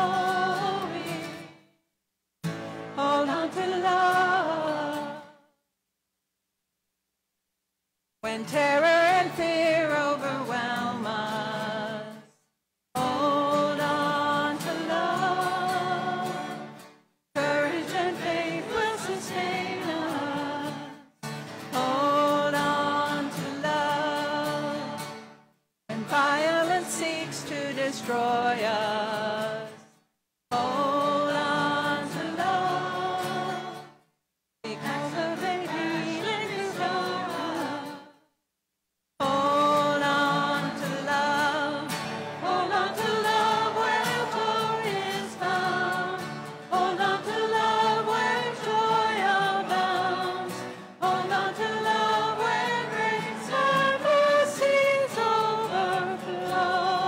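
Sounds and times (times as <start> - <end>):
choir and congregation singing hymn: 13.2 - 16.6, 17.4 - 21.0, 30.6 - 33.8, 34.7 - 37.9, 39.8 - 57.0
music behind voices: 39.9 - 57.0.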